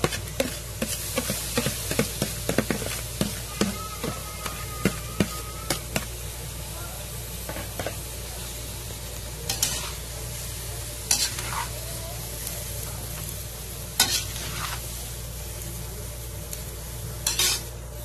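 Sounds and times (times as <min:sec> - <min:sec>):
metal spatula scraping wok: 0:00.0 - 0:06.1, 0:09.5 - 0:10.1, 0:11.0 - 0:11.8, 0:14.0 - 0:15.0, 0:17.2 - 0:17.7
food sizzling: 0:00.0 - 0:18.0.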